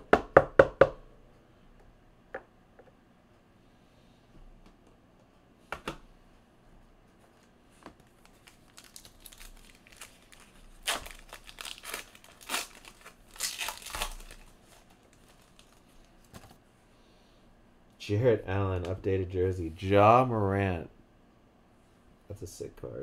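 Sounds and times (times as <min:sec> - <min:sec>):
wrapper crinkling and tearing: 0:08.0 - 0:16.3.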